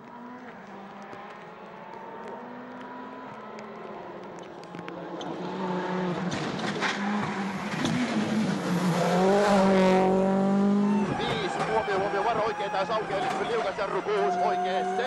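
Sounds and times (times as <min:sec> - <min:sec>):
rally car engine accelerating: 0:05.0 - 0:15.0.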